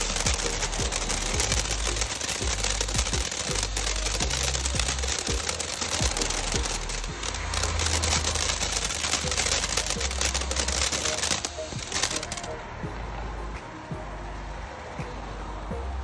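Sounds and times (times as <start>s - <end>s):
firework fountain hissing and crackling: 0.0s - 16.0s
low rumble: 11.8s - 16.0s.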